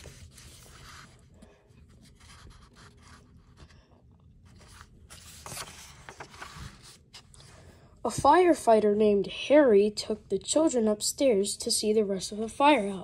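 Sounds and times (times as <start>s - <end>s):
page being turned: 0.0s - 3.7s, 4.5s - 7.5s
book pages rustling: 0.0s - 7.6s.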